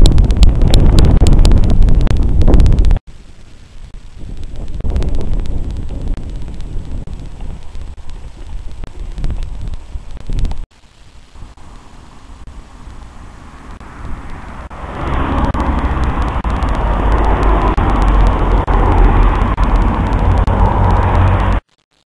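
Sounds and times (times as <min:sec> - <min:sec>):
car driving past: 0:13.3 - 0:21.6.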